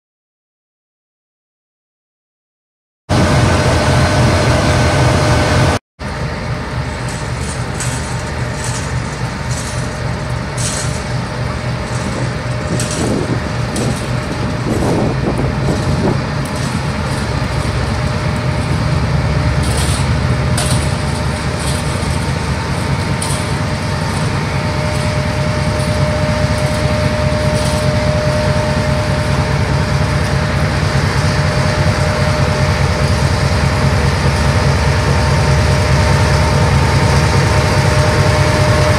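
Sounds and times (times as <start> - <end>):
diesel locomotive engine rumble: 3.1 - 38.9.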